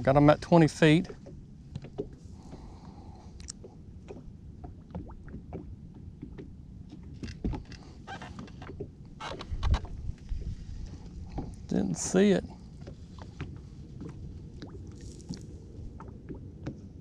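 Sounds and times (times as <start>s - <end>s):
wind and water rumble: 0.0s - 17.0s
ticks and knocks from fishing gear: 1.0s - 2.7s, 4.9s - 9.9s.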